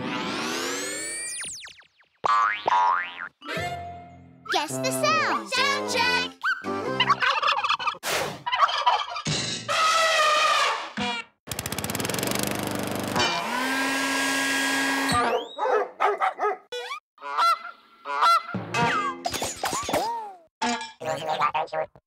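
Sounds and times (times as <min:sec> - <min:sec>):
rapid rattling buzz: 0:11.5 - 0:13.2
cartoon goose honks: 0:17.2 - 0:18.5.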